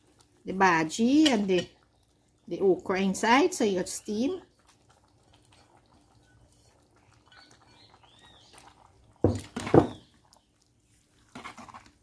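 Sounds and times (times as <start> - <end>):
faint bird chirps: 7.1 - 8.8.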